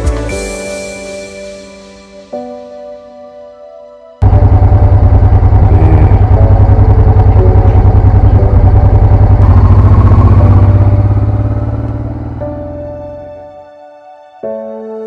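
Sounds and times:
motorcycle engine running: 4.2 - 13.6.

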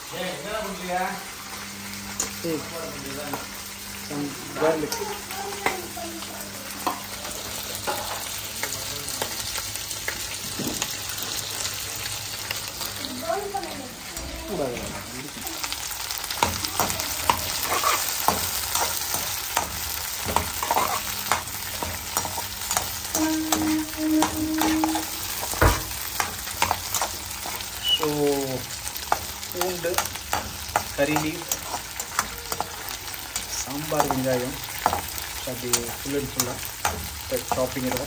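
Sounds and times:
food sizzling in hot oil: 0.0 - 38.0
spoon knocking on pan: 16.4 - 27.7, 33.9 - 38.0
metal spoon scraping a pan: 16.8 - 28.2, 29.0 - 38.0.

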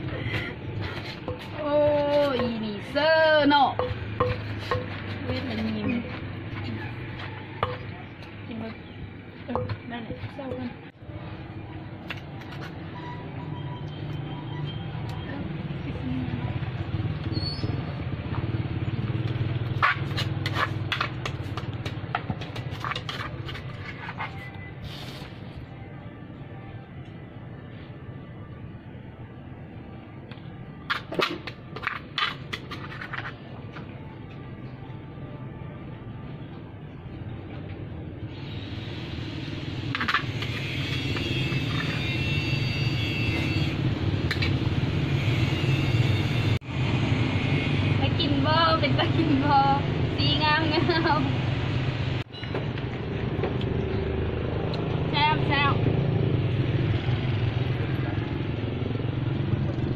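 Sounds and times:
vehicle engine rumbling: 0.0 - 59.9
metal spoon knocking clay mortar: 3.7 - 5.6, 7.6 - 8.2
metal spoon scraping clay mortar: 3.7 - 8.2, 19.7 - 25.4, 31.8 - 33.5, 40.0 - 42.1.

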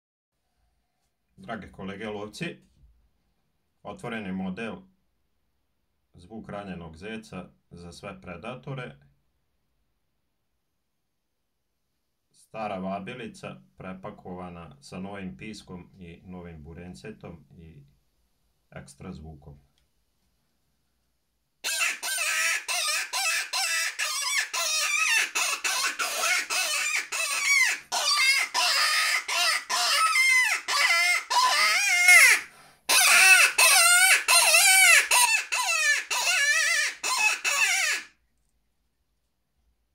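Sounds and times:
predator call squealing: 21.6 - 38.2.

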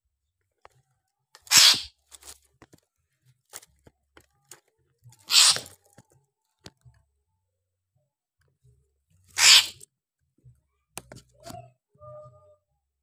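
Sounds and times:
bird harsh hissing calls: 1.5 - 1.9, 5.2 - 5.7, 9.4 - 9.8
clicks and taps in cage: 11.0 - 11.7.

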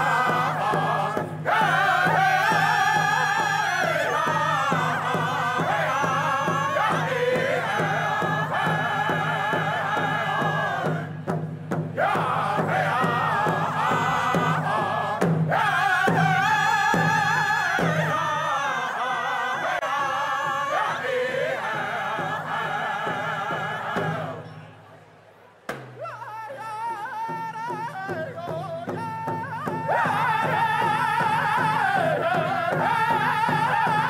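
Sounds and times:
frame drums beating: 0.0 - 18.2, 25.7 - 34.0
group chanting: 0.0 - 24.6, 29.8 - 34.0.

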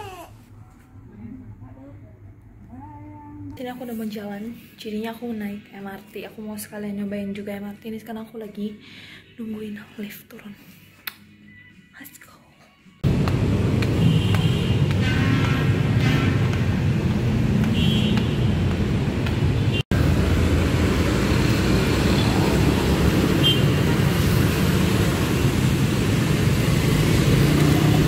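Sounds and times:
cars and motorbikes passing: 13.0 - 28.0.

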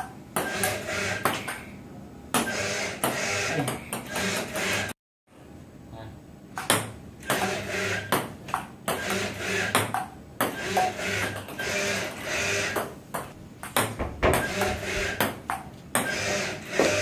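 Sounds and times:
ping pong ball clicking: 9.7 - 11.6, 12.7 - 16.1
robot arm motors whirring: 16.0 - 17.0.

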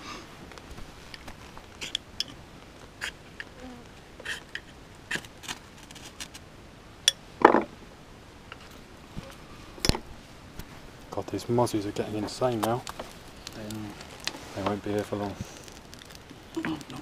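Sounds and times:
fire steel scraping: 8.6 - 16.6.

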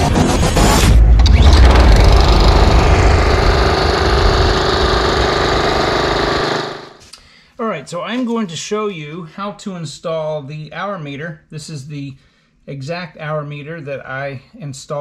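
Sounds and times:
lawn mower engine running: 1.3 - 7.0.

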